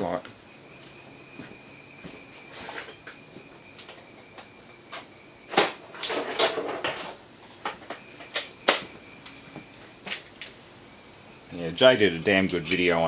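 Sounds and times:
hard objects knocking and clattering: 5.6 - 8.9.

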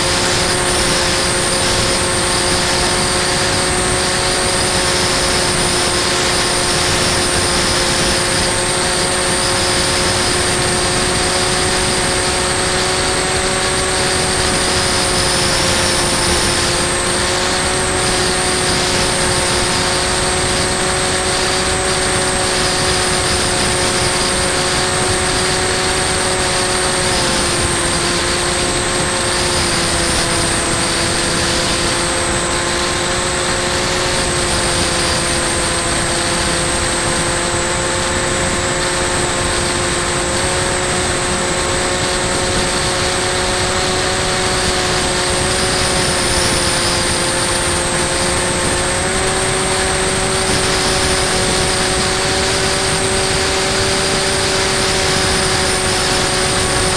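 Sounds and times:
electric motor whine: 0.0 - 56.9
rushing air and wind: 0.0 - 56.9.

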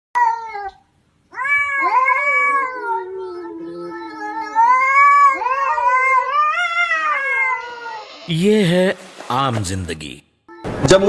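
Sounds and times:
cat yowling: 0.2 - 8.3.

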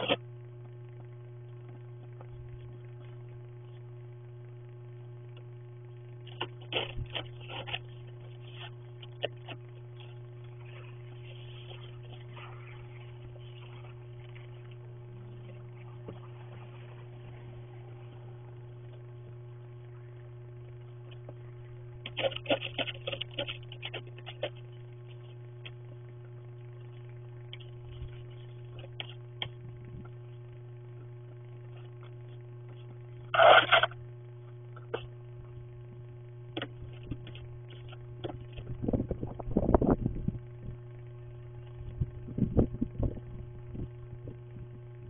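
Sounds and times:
low electrical hum: 0.0 - 45.0
snow brush scraping windshield: 10.0 - 18.1.

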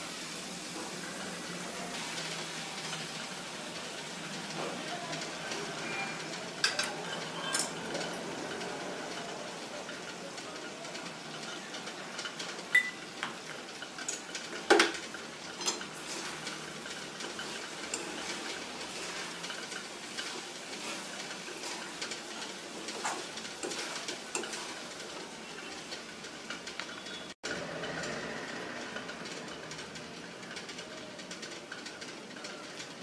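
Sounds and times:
light sizzle of frying: 0.0 - 33.0
spatula scraping metal pan: 15.0 - 27.2.

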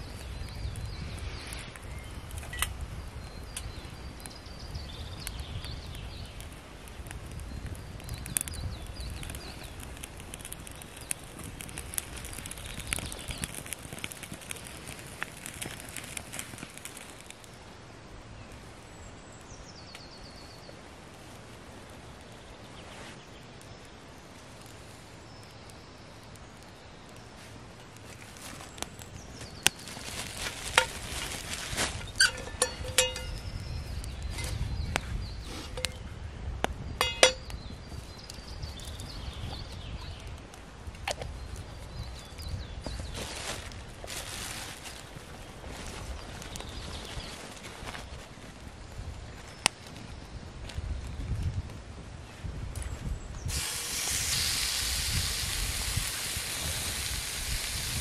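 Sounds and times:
wood fire crackling: 0.0 - 58.0
metal pan clinks and knocks: 32.2 - 33.4, 37.0 - 37.4.

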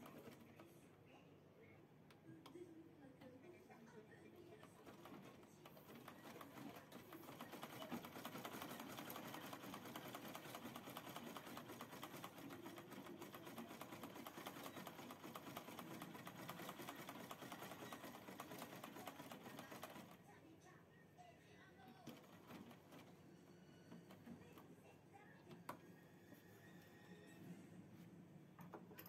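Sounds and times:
sewing machine clattering: 0.0 - 0.6, 4.6 - 20.2, 22.0 - 23.1.

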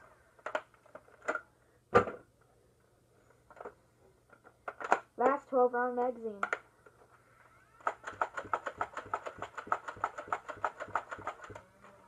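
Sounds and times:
toy blaster firing darts: 7.4 - 12.0.

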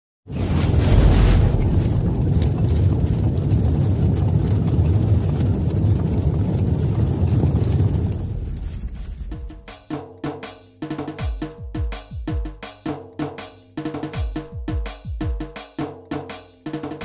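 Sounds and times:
deep rumbling: 0.3 - 9.5.

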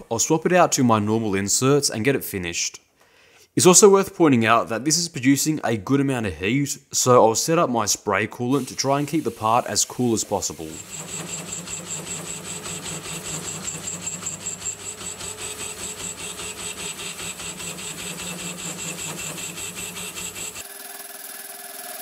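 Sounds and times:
lathe cutting steel: 8.6 - 22.0
lathe running hum: 10.5 - 22.0.

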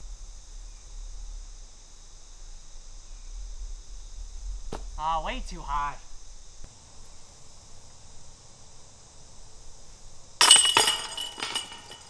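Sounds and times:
disc striking metal chains: 10.4 - 12.0.

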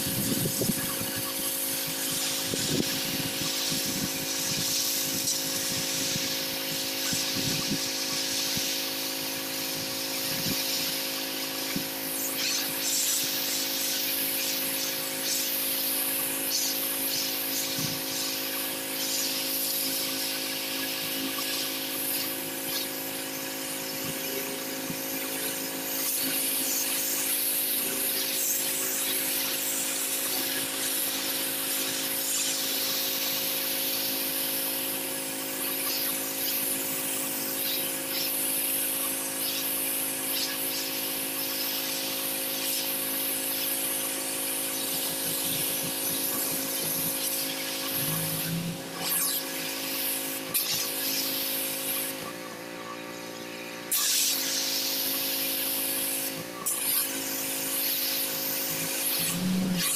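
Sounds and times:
high-pressure water spraying: 0.0 - 52.4, 53.8 - 59.9
pressure washer motor hum: 0.0 - 59.9.

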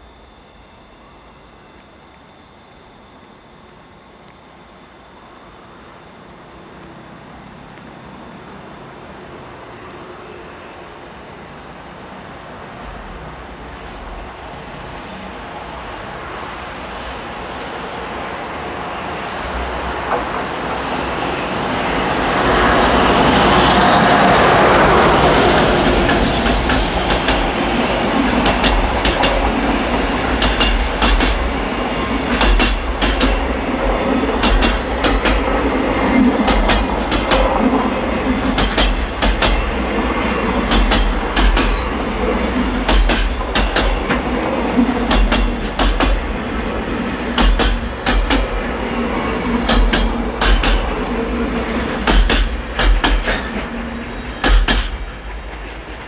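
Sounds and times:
electric locomotive passing: 0.0 - 56.0
train wheels clattering over rail joints: 24.7 - 56.0.

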